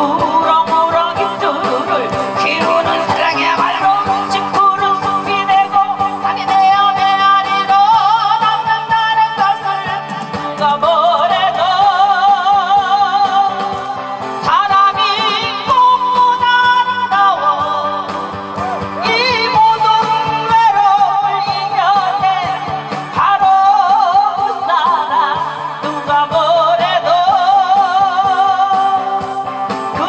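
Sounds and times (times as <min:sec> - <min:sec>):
instrumental accompaniment: 0:00.0 - 0:30.0
woman singing with vibrato: 0:00.0 - 0:30.0.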